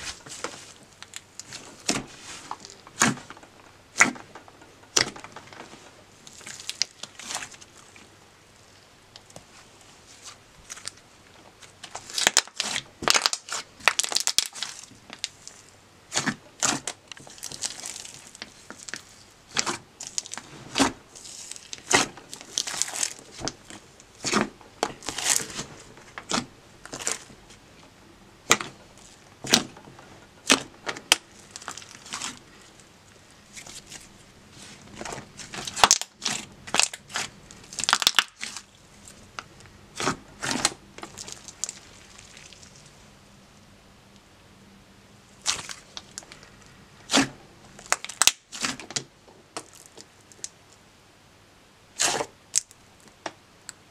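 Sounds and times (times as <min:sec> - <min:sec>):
slime popping and crackling: 0:06.2 - 0:08.1, 0:11.6 - 0:27.4, 0:28.4 - 0:29.8, 0:30.4 - 0:32.8, 0:33.4 - 0:43.0, 0:45.4 - 0:46.4, 0:47.1 - 0:50.6, 0:52.0 - 0:53.3.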